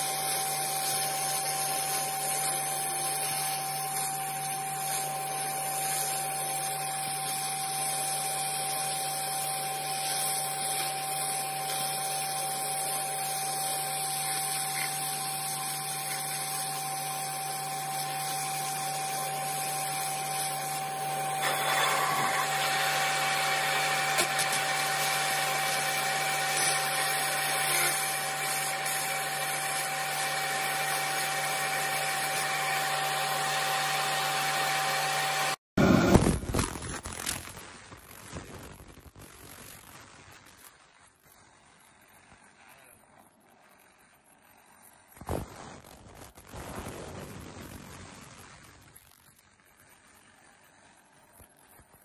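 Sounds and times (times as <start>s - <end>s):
laser machine humming with high tone: 0.0s - 36.2s.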